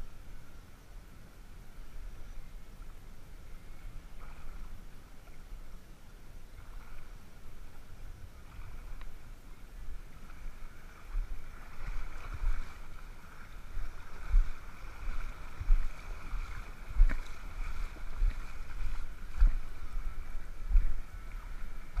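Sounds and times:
faint high hum: 0.0 - 22.0
water and wind noise: 0.0 - 22.0
wind buffeting microphone: 6.5 - 22.0.

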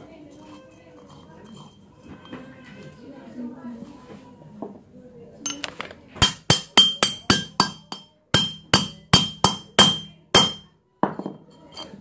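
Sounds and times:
hammer tapping steel rod: 6.2 - 10.7.

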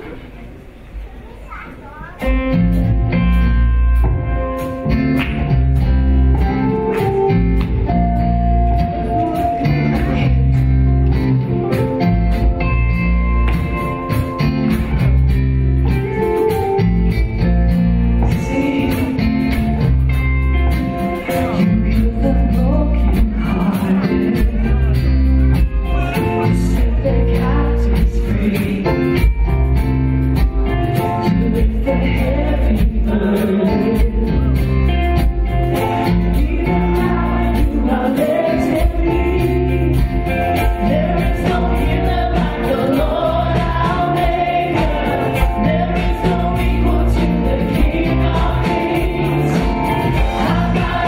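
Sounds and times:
guitar: 0.0 - 51.0
bass: 1.9 - 51.0
worship band music: 2.3 - 51.0
voices singing: 36.4 - 51.0.

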